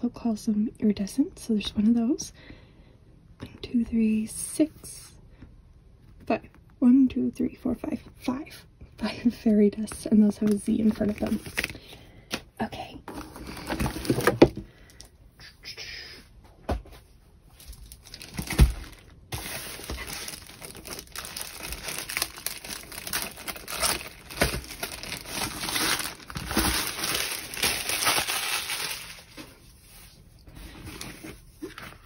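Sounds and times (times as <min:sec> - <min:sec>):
plastic wrapping crinkling: 0:10.4 - 0:11.9, 0:17.5 - 0:32.0.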